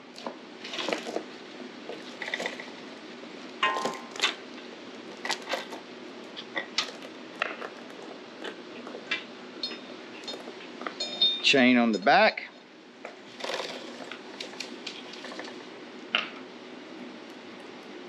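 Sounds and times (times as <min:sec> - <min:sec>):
metal chain clinking and rattling: 0:09.6 - 0:11.5.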